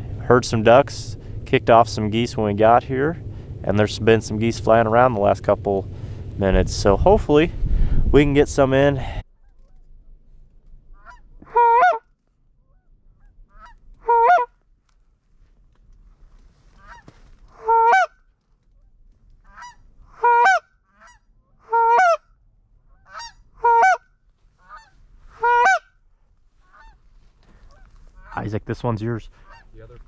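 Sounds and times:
goose honking: 10.9 - 14.5, 16.6 - 18.2, 19.4 - 22.2, 22.9 - 28.5, 29.3 - 29.8.

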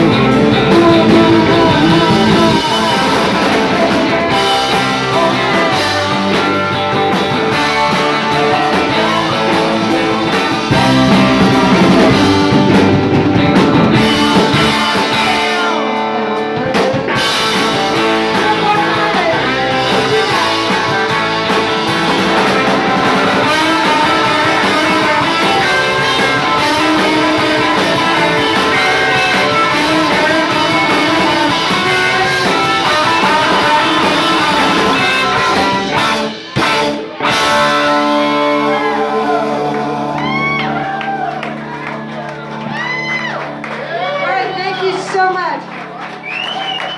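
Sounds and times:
rock band playing: 0.0 - 46.9
woman singing: 0.4 - 6.7, 7.5 - 12.4, 17.9 - 21.6, 23.2 - 36.1.

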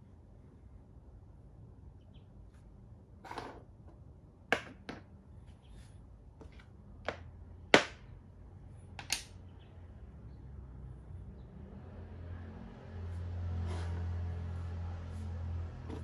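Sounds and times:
plastic chess pieces clacking: 9.0 - 9.3.

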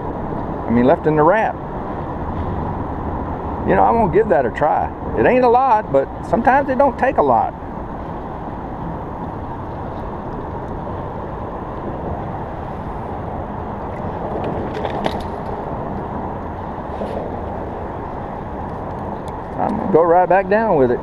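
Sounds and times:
road traffic rushing overhead: 0.0 - 21.0.

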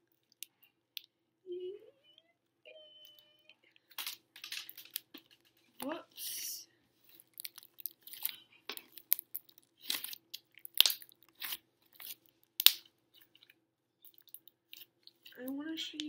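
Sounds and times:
slime popping: 7.2 - 13.4
slime kneaded with sticky clicks: 7.3 - 13.4.

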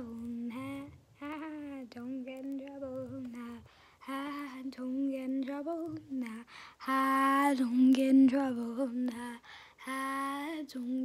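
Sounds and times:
girl singing without words: 0.0 - 11.0.

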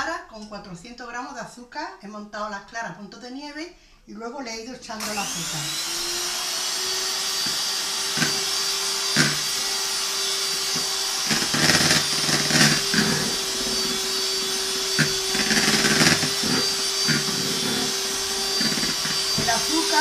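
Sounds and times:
electric hand mixer whining: 5.0 - 20.0.

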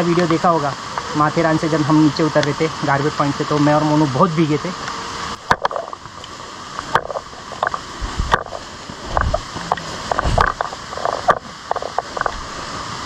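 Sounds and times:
steady rain hiss: 0.0 - 13.0
small knocks and clicks: 5.5 - 12.4
low thumps: 6.8 - 12.6.

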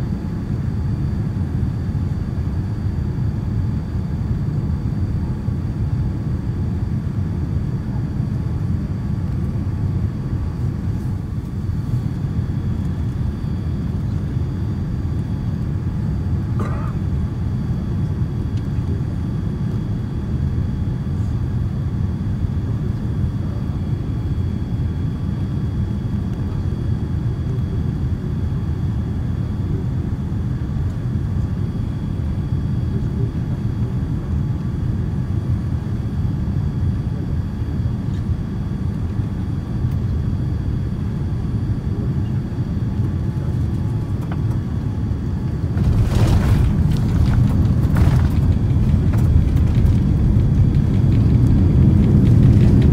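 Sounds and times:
aircraft cabin engine rumble: 0.0 - 52.9
faint steady whine: 0.0 - 52.9
airliner touching down: 42.6 - 52.9.

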